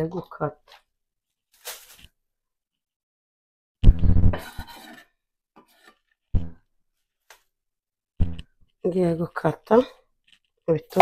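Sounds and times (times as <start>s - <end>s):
plastic bag rustling: 1.5s - 2.1s.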